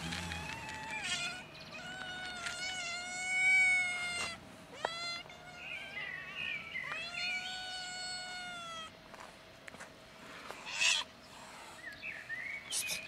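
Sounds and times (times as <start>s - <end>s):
cats meowing: 0.0s - 9.0s, 10.6s - 11.1s.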